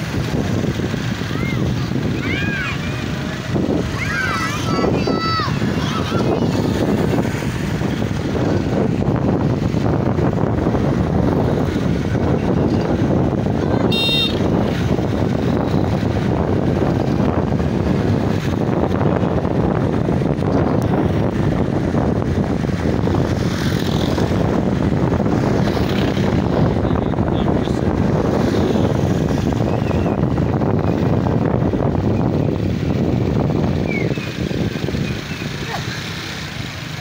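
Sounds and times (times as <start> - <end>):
motorcycle engine running: 0.0 - 4.6
wind noise on microphone: 0.0 - 37.0.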